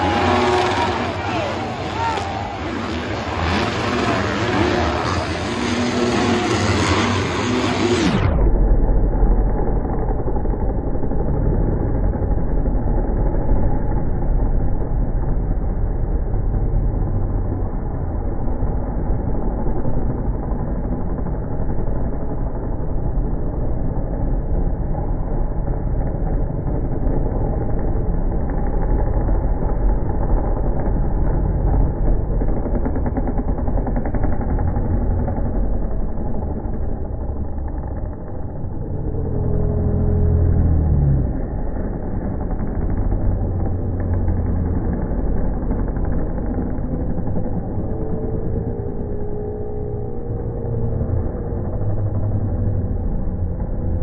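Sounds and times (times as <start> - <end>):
dirt bike engines revving: 0.0 - 54.0.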